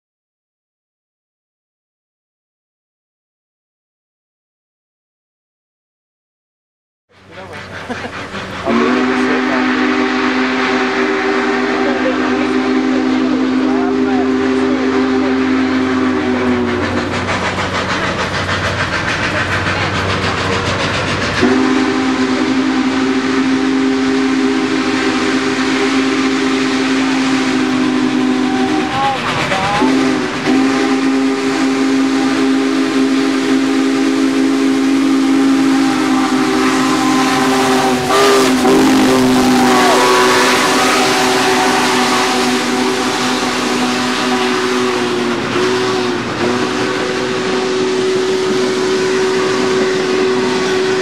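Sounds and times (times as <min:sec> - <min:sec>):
steam locomotive hiss and rumble: 0:07.1 - 0:51.0
steam whistle blasts: 0:08.0 - 0:18.5, 0:21.4 - 0:51.0.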